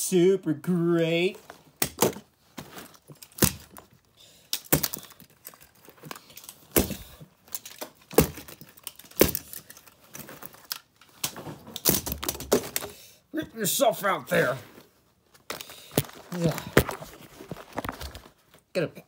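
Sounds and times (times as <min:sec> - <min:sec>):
loose parts clicking and rattling: 0:01.8 - 0:13.0
plastic cracking and snapping: 0:03.2 - 0:12.9.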